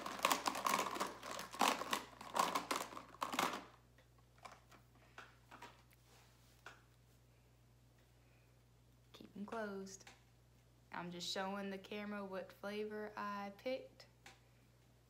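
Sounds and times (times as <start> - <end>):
plastic tubes rattling: 0.0 - 3.8.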